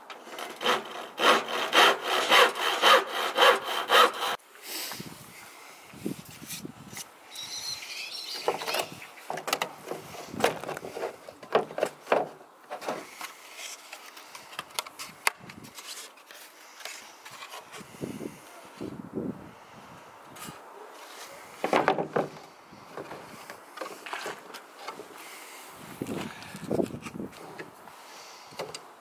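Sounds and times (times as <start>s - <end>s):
wood knocking and scraping on plastic: 8.4s - 13.3s, 21.6s - 25.1s.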